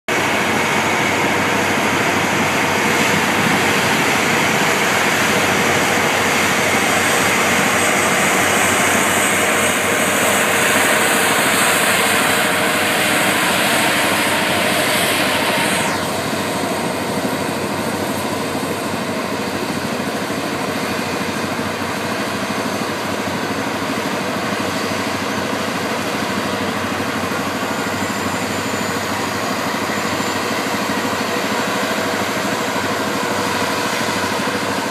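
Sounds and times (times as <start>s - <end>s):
diesel engines running: 0.1s - 22.5s.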